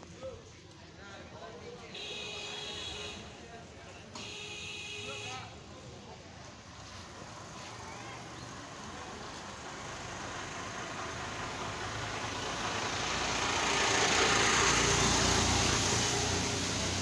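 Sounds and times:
tractor diesel engine running: 7.1 - 17.0.

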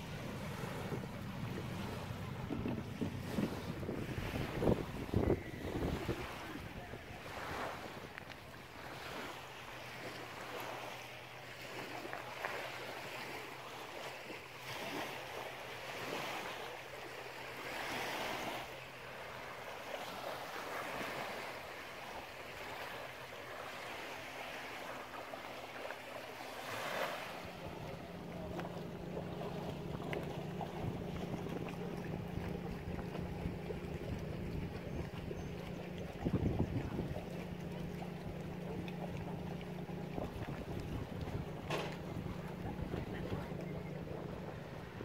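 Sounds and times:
wind on microphone: 0.0 - 8.2, 27.4 - 45.0
lapping lake water: 0.0 - 45.0
loud low hum: 27.5 - 45.0.

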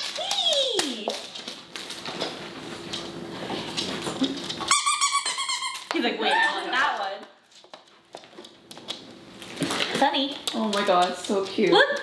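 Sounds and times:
high steady squeak: 4.7 - 6.0.

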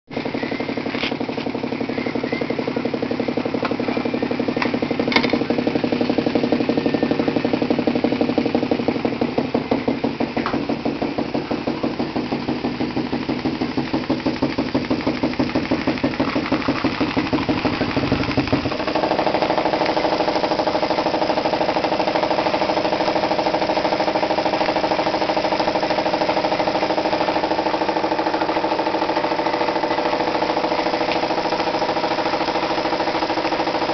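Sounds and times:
model steam engine running: 0.1 - 33.9.

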